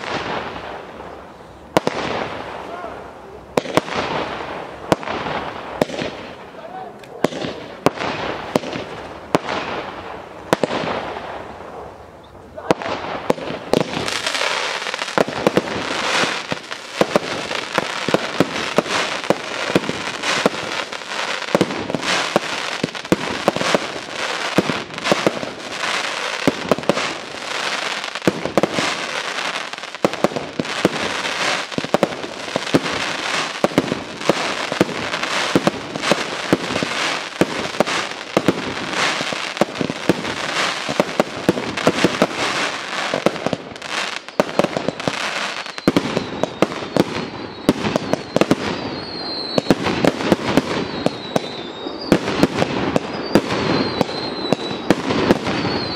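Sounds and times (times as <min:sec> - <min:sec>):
fireworks bangs and pops: 0:00.0 - 0:11.8, 0:12.6 - 0:55.9.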